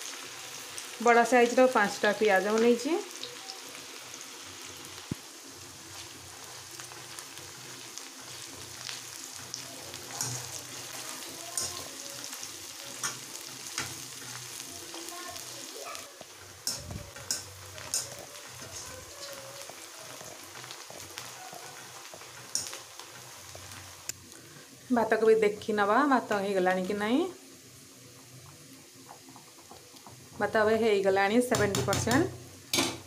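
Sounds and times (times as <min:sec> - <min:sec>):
onions sizzling in hot oil: 0:00.0 - 0:33.0.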